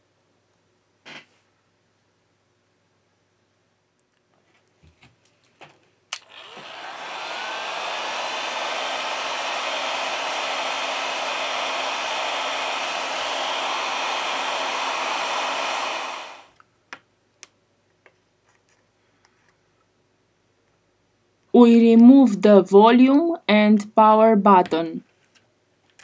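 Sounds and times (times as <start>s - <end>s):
heat gun fan blowing: 6.1s - 16.6s.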